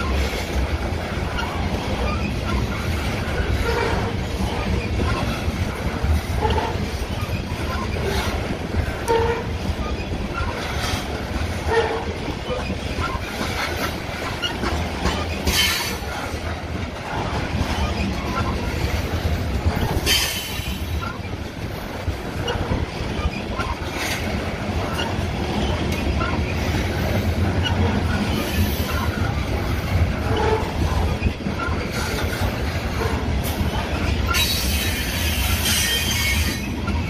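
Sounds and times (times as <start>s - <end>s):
train wheels rumbling on rail: 0.0s - 37.0s
high-pitched wheel squeals: 34.2s - 37.0s.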